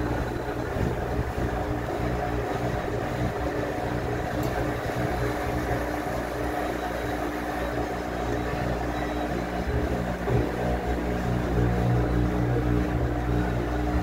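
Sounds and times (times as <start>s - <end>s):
washing machine humming: 0.0s - 14.0s.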